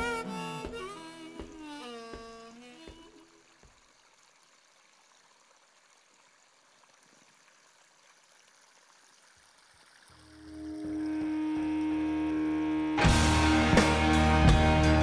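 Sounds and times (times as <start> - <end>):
harmonica tune: 0.0 - 3.4, 10.6 - 13.8
creek trickling: 0.0 - 14.1.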